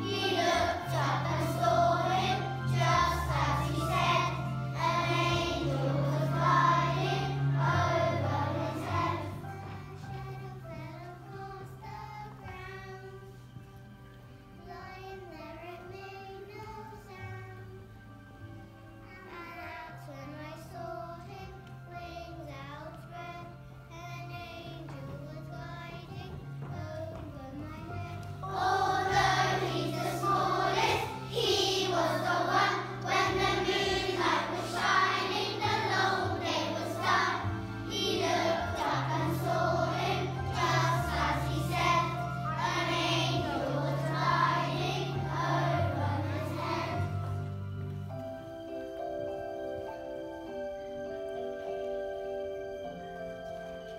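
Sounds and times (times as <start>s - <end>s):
children singing: 0.0s - 13.2s, 27.8s - 47.5s
instrumental accompaniment with bass: 0.0s - 53.9s.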